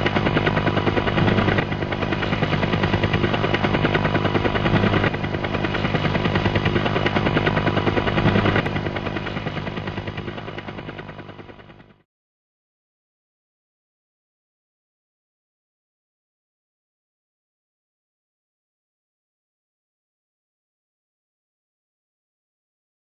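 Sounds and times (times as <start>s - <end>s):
low hum: 0.0s - 11.7s
rapid mechanical clatter: 0.0s - 12.0s.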